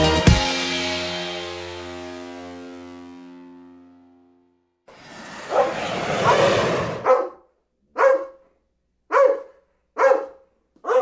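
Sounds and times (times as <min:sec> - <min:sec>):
dog barking: 0:05.4 - 0:11.0.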